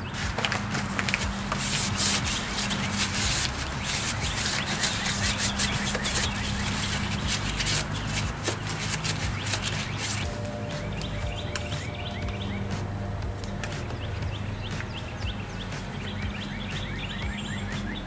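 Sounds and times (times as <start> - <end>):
paper towel scratchy rubbing: 0.0 - 10.4.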